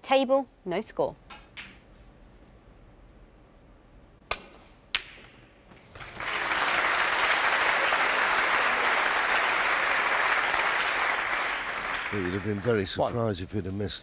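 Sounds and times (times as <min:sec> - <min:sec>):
audience applause: 0:06.0 - 0:13.0.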